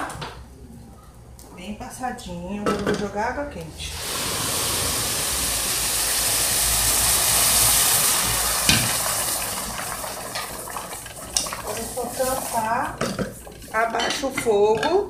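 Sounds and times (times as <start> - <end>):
water hissing in a hot pot: 3.8 - 13.8.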